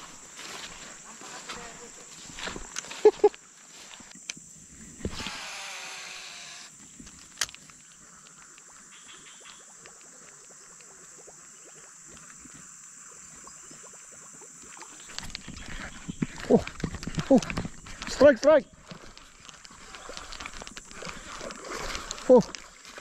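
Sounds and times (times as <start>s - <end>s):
fishing reel spool whirring: 5.1s - 6.7s.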